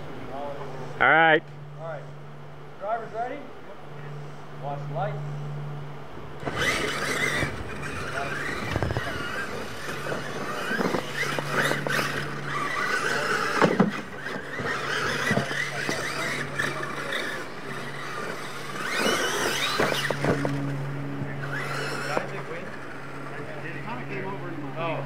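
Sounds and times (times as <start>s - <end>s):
electric motors whining: 0.0s - 25.0s
steady low hum: 0.0s - 25.0s
tyres scrabbling in loose dirt: 6.4s - 20.7s, 21.4s - 23.4s.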